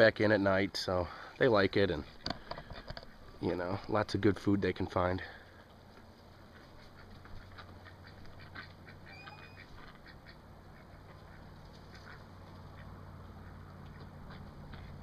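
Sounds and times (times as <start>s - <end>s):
ducks quacking faintly: 4.9s - 15.0s.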